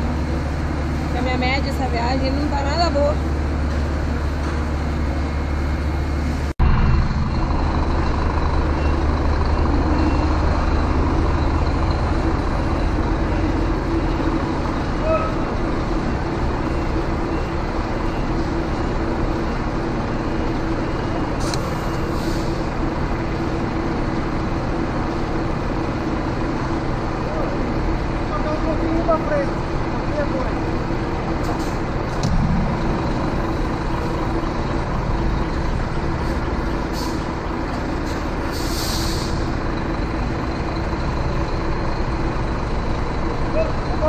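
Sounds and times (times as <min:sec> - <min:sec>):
truck diesel engine droning: 0:00.0 - 0:44.0.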